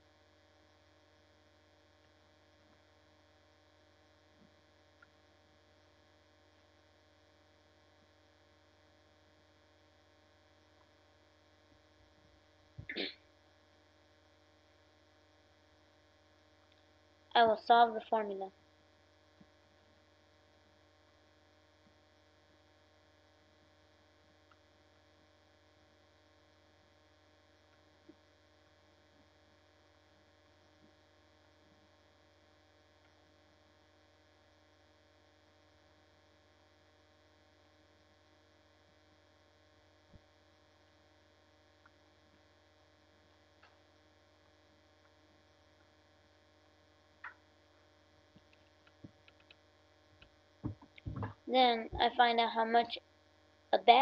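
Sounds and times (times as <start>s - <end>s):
electrical mains hum: 0.0s - 54.0s
faint clicks: 48.4s - 49.6s.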